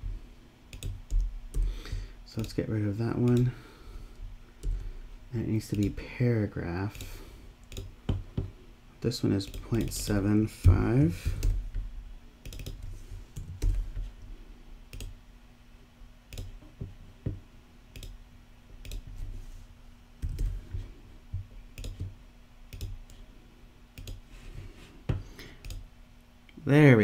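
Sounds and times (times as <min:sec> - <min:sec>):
faint hum: 0:00.0 - 0:27.0
computer mouse clicks: 0:00.7 - 0:01.7, 0:07.0 - 0:07.9, 0:12.4 - 0:13.8, 0:14.9 - 0:15.2, 0:16.3 - 0:16.6, 0:17.9 - 0:18.2, 0:18.8 - 0:19.1, 0:21.7 - 0:22.1, 0:22.7 - 0:23.2, 0:24.0 - 0:24.2, 0:25.6 - 0:25.8
keyboard keystrokes: 0:12.4 - 0:12.8.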